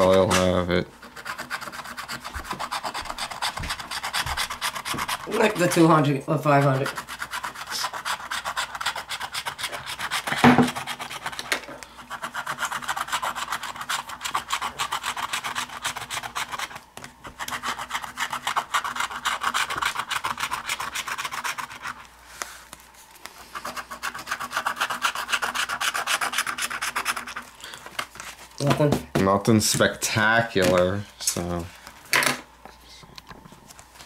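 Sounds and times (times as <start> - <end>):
lottery ticket being scratched: 0.0 - 22.5, 23.5 - 27.5.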